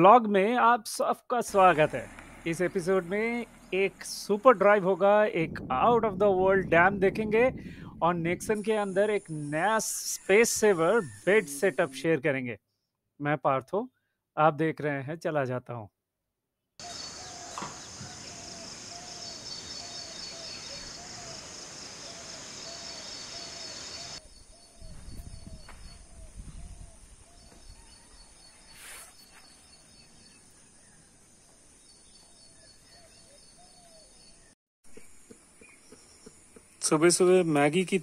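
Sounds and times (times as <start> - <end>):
insects buzzing: 16.8 - 24.3
bird short call: 28.6 - 29.4.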